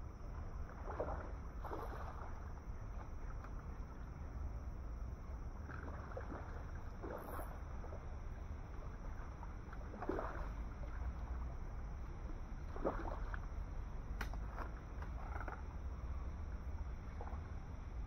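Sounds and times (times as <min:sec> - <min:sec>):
steady low rumble: 0:00.0 - 0:18.0
fish splashing in water: 0:05.7 - 0:08.2, 0:09.1 - 0:11.1, 0:12.6 - 0:13.6.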